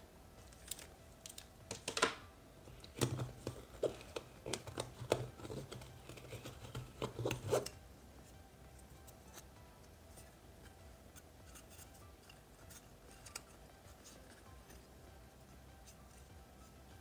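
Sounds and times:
cables rustling and scraping: 0:02.6 - 0:07.8, 0:09.0 - 0:14.9.

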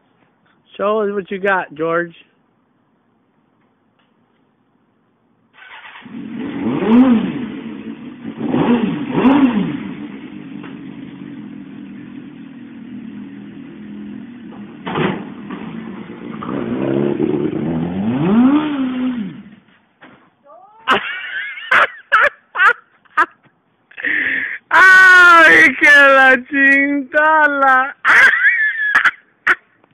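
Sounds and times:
motorcycle engine revving: 0:05.6 - 0:19.7.

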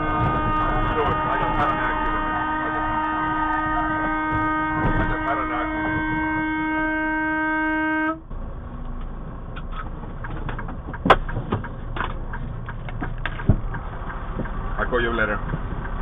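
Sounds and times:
vehicle horn: 0:00.0 - 0:08.3.

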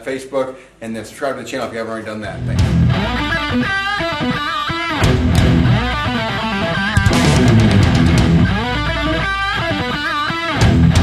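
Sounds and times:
loud guitar-led music: 0:02.4 - 0:11.0.

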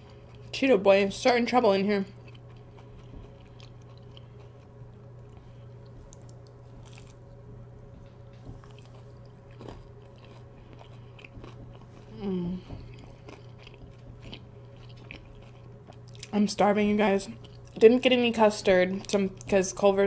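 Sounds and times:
person chewing food: 0:00.0 - 0:00.5, 0:02.1 - 0:16.3, 0:17.4 - 0:17.8
steady low hum: 0:00.0 - 0:20.0.

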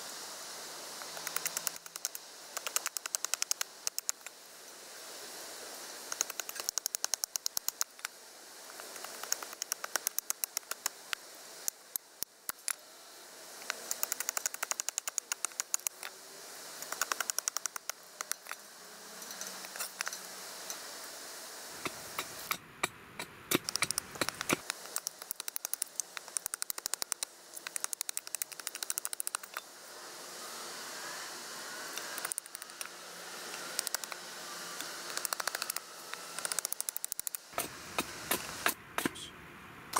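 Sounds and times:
knife chopping wooden stick: 0:37.6 - 0:39.3.

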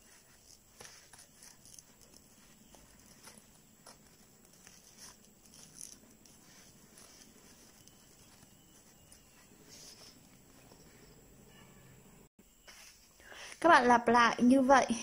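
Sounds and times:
yarn rustling through crochet hook: 0:00.0 - 0:11.4.

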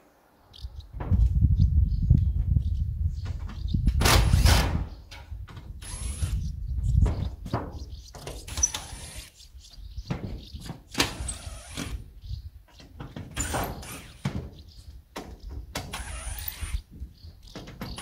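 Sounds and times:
cordless drill removing screws: 0:08.5 - 0:09.3, 0:10.9 - 0:12.0, 0:13.3 - 0:14.5, 0:15.8 - 0:16.8.

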